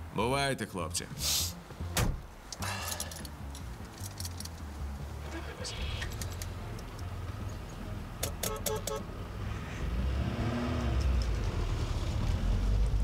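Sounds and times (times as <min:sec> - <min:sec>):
car engine running and revving: 0:09.1 - 0:13.0.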